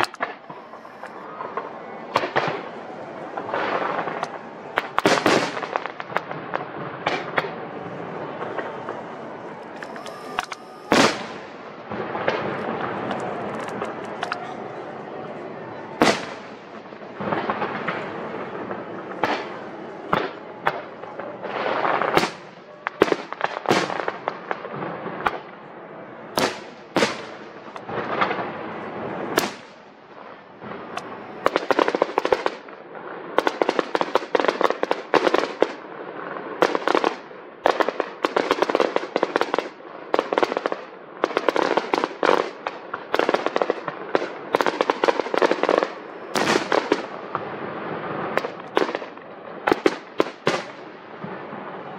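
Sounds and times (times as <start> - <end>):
fireworks shells bursting: 8.4 - 14.4.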